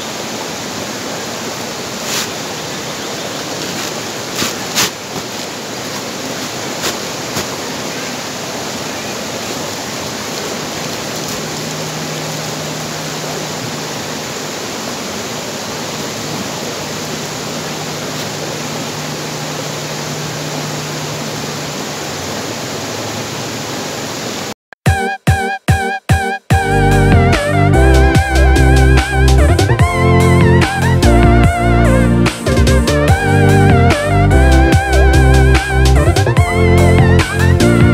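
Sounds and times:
stream rushing over rocks: 0:00.0 - 0:24.6
upbeat music: 0:24.8 - 0:37.9.

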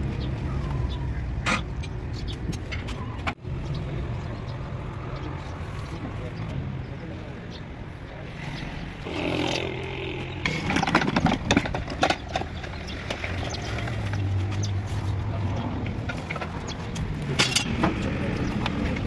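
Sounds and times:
heavy metal clanks and knocks: 0:10.4 - 0:13.3.

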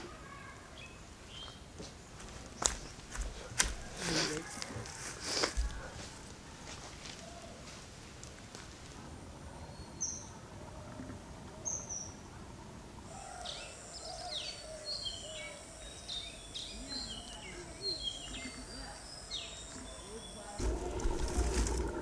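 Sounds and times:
bird chirps: 0:13.1 - 0:22.0.

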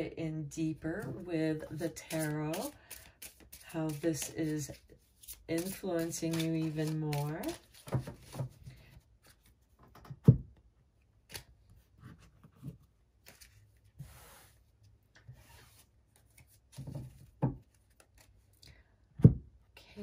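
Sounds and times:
cards shuffling and rustling: 0:01.7 - 0:10.1, 0:11.2 - 0:14.4, 0:15.6 - 0:18.6.

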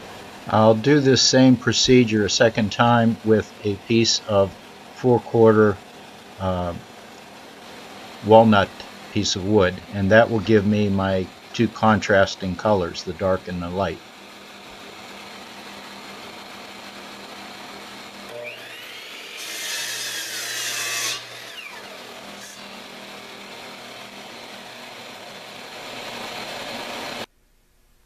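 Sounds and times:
background hiss: 0:00.0 - 0:15.1, 0:27.2 - 0:28.0
miter saw motor: 0:12.6 - 0:27.3
saw blade cutting wood: 0:18.3 - 0:25.3.

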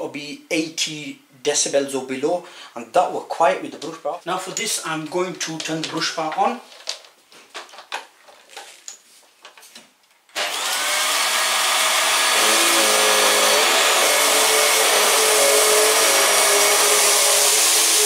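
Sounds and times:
upright vacuum cleaner running: 0:10.4 - 0:18.0.

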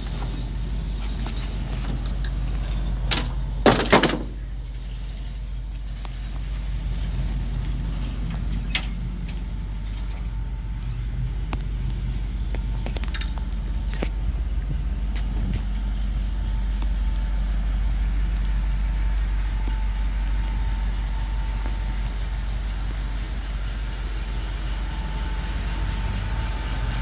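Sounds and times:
truck engine idling: 0:00.0 - 0:27.0
metal door clattering open: 0:01.9 - 0:04.5.

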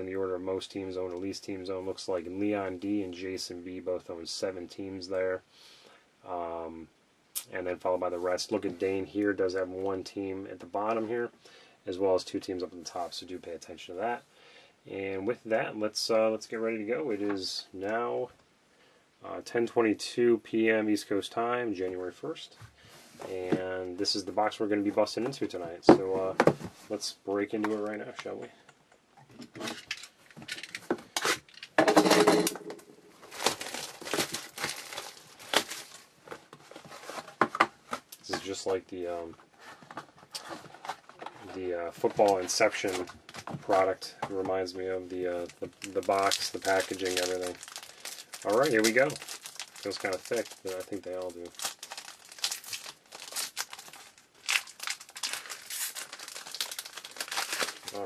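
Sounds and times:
foil wrapper crinkling: 0:33.2 - 0:36.2, 0:45.4 - 0:58.0.

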